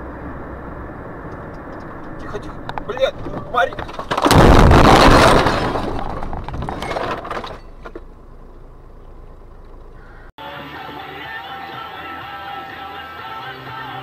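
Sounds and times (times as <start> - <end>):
vehicle crash: 2.1 - 8.5
debris clattering: 3.1 - 8.2.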